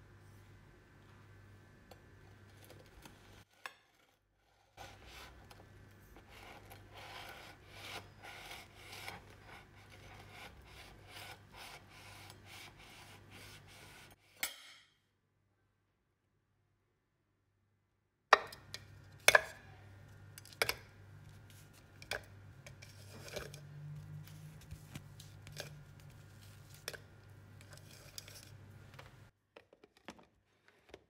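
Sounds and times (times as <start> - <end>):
knife sawing through cake: 4.4 - 5.5, 6.2 - 14.2.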